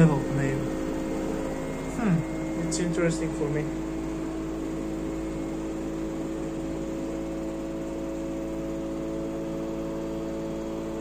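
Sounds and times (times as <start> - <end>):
washing machine drum spinning: 0.0 - 11.0.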